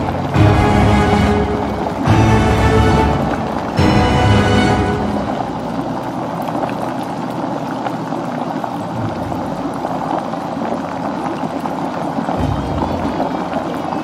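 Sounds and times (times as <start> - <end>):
rushing water: 0.0 - 14.0.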